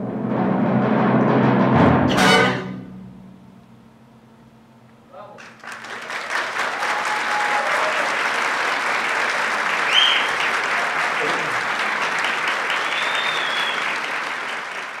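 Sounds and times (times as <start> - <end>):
audience applauding: 5.4 - 15.0
short high whistles: 9.9 - 10.4, 12.7 - 14.0.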